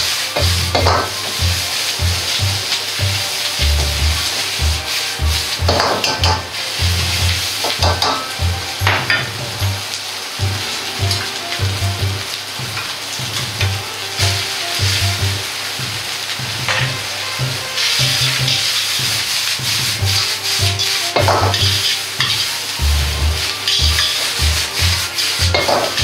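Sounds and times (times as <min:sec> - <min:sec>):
metal tongs scraping a wok: 0:00.0 - 0:09.9, 0:16.7 - 0:26.0
background music with bass line: 0:00.0 - 0:26.0
noodles sizzling in a wok: 0:00.0 - 0:26.0.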